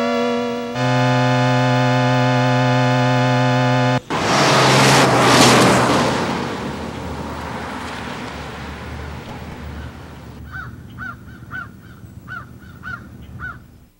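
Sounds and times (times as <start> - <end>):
car driving away: 0.0 - 10.4
crow cawing: 10.5 - 13.6.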